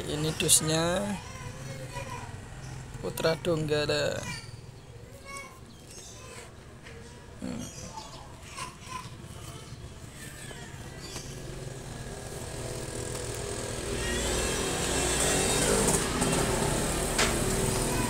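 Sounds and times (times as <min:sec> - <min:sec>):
vehicle engine: 0:09.2 - 0:18.0.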